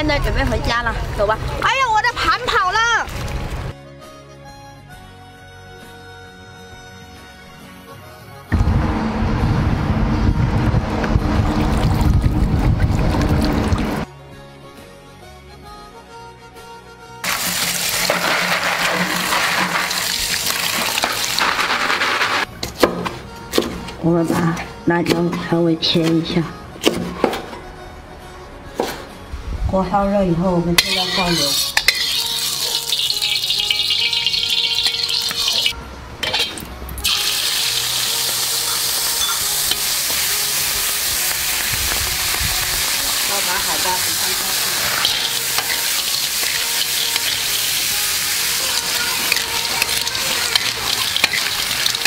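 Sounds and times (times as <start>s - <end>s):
oil sizzling in a wok: 17.2s - 22.5s, 30.8s - 52.0s
cleaver chopping on wooden board: 22.7s - 23.8s, 26.8s - 27.4s
metal spatula stirring: 30.8s - 36.6s, 44.4s - 47.6s, 48.5s - 52.0s.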